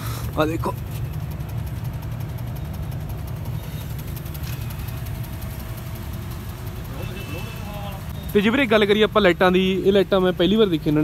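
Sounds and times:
diesel tractor engine idling: 0:00.0 - 0:11.0.

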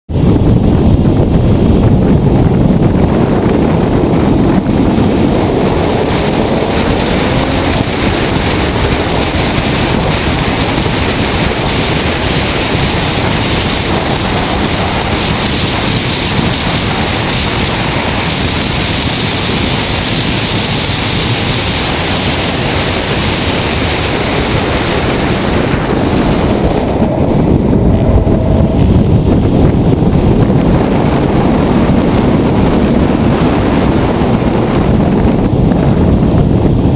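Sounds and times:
road and tyre noise: 0:00.1 - 0:36.9
wind buffeting microphone: 0:00.1 - 0:36.9
faint whine rising in pitch: 0:03.8 - 0:10.0, 0:24.0 - 0:31.0.

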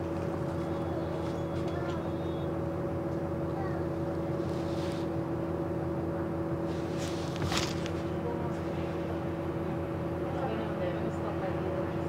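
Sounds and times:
bus engine drone with whine: 0:00.0 - 0:12.0.

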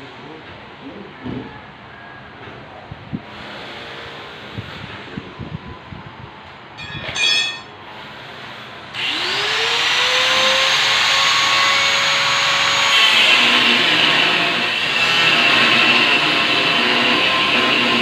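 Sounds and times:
grinder cutting metal grill: 0:06.8 - 0:18.0
angle grinder whining: 0:08.9 - 0:18.0.

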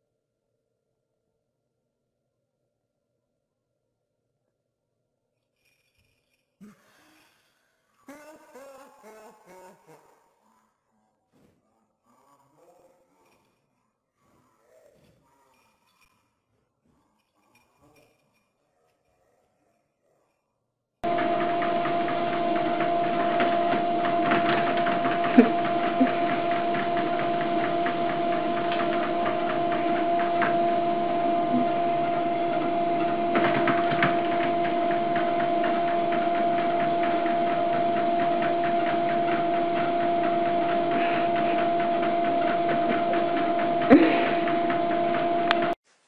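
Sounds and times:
treadmill motor hum and whine: 0:21.0 - 0:45.8.

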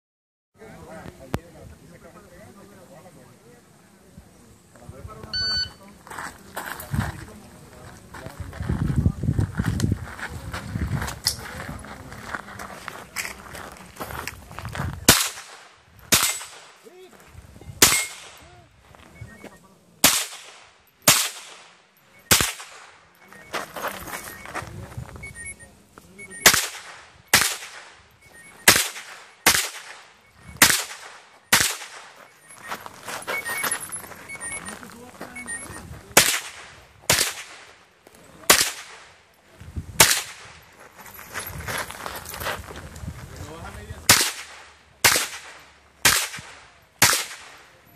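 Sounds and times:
rifle shots: 0:15.1 - 0:16.8, 0:17.8 - 0:18.4, 0:20.0 - 0:23.0, 0:26.4 - 0:28.0, 0:28.6 - 0:32.2, 0:36.2 - 0:37.8, 0:38.5 - 0:39.2, 0:40.0 - 0:40.6, 0:44.1 - 0:47.7.

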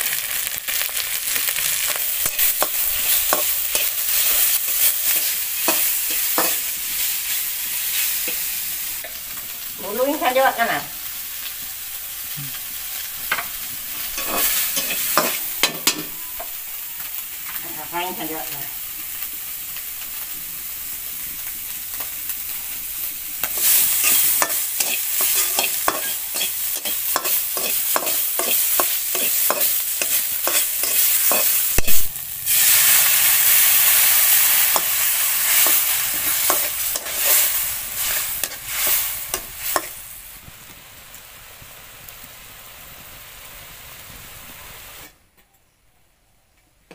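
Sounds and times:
meat frying in oil: 0:00.0 - 0:45.1
metal spatula scraping a wok: 0:01.6 - 0:09.2, 0:13.3 - 0:16.5, 0:23.4 - 0:40.0.

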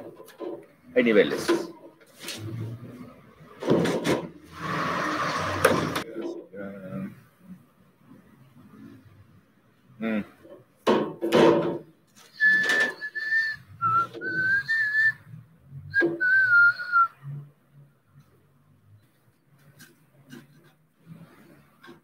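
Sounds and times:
person whistling a tune: 0:12.3 - 0:15.2, 0:15.9 - 0:17.2.

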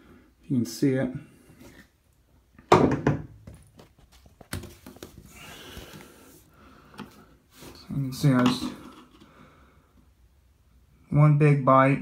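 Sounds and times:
knocks in a bathtub: 0:02.7 - 0:03.4.

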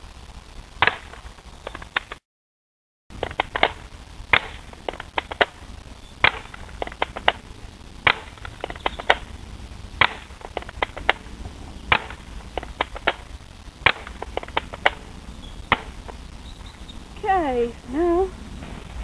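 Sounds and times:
bb gun shots: 0:00.8 - 0:02.2, 0:03.2 - 0:09.3, 0:10.0 - 0:16.2.

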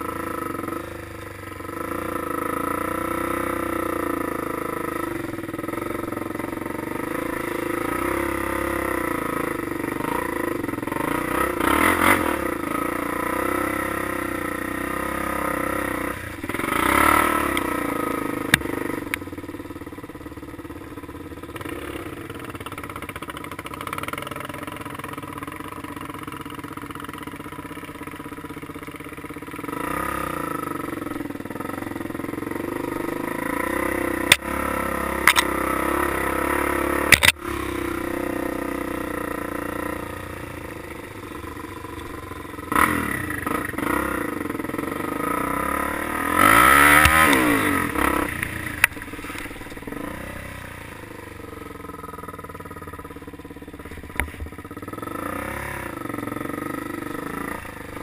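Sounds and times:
off-road vehicle engine revving: 0:01.7 - 0:19.2, 0:29.5 - 0:53.2, 0:53.8 - 0:58.0
sharp knocks over bumps: 0:37.1 - 0:37.4.

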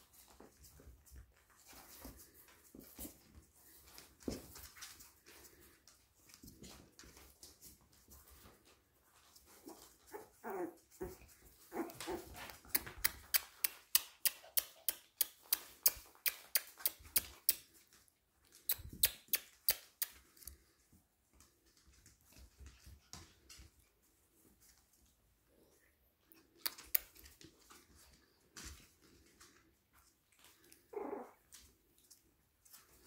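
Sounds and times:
dog whimpering and whining: 0:09.6 - 0:12.4, 0:30.8 - 0:31.5.

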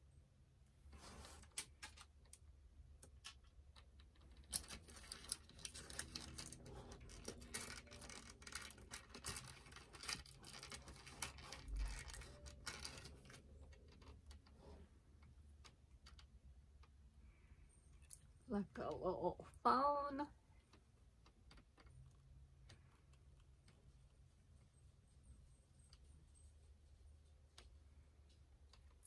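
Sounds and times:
packaging rustling: 0:04.1 - 0:14.6.

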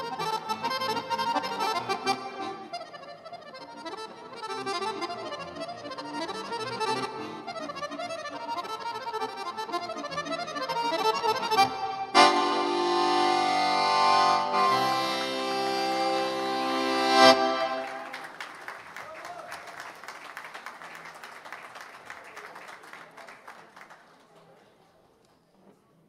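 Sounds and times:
accordion sustained chords: 0:00.0 - 0:18.4
audience applause: 0:17.7 - 0:25.0.

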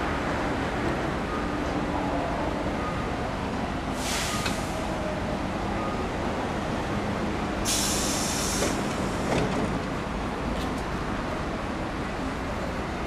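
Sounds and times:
compressed air hissing: 0:07.7 - 0:08.8.

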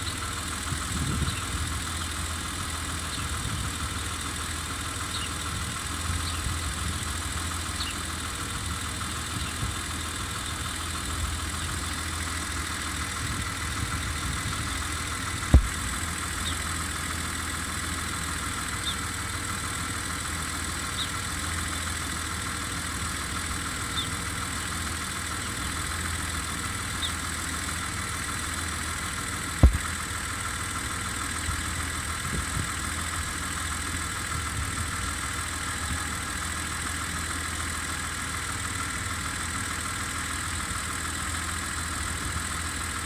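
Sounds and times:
car mechanical hum: 0:00.0 - 0:43.0
short thump: 0:15.5 - 0:15.7, 0:29.6 - 0:29.8.

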